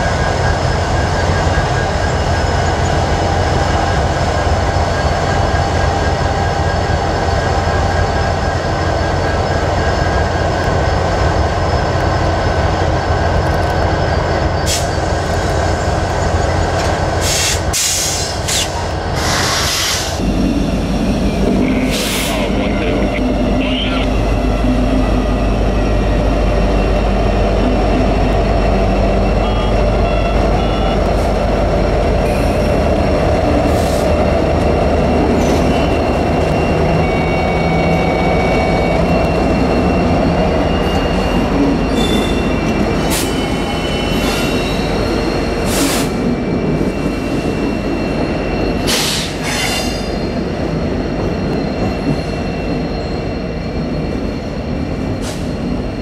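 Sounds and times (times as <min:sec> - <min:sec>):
diesel locomotive rumble: 0:00.0 - 0:56.0
train wheel screeches: 0:09.4 - 0:20.2, 0:35.4 - 0:46.2, 0:46.8 - 0:56.0.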